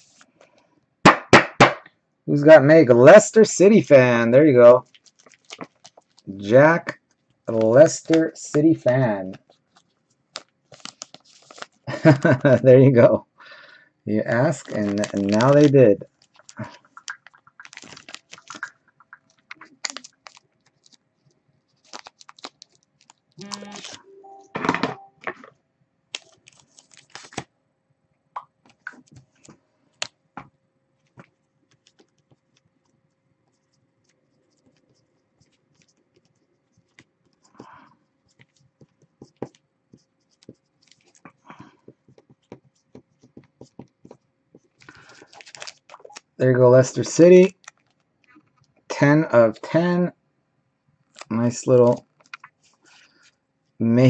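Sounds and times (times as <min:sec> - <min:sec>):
plastic rustling and sliding: 0:04.8 - 0:06.3, 0:09.2 - 0:12.6, 0:14.3 - 0:24.0, 0:40.4 - 0:46.2
marker pen writing: 0:31.0 - 0:44.8.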